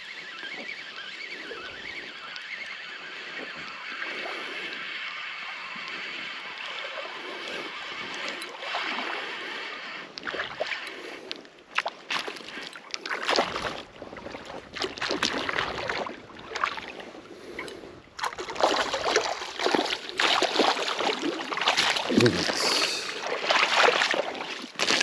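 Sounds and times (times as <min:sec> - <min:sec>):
water sloshing and splashing: 0:06.5 - 0:09.6, 0:10.2 - 0:25.0.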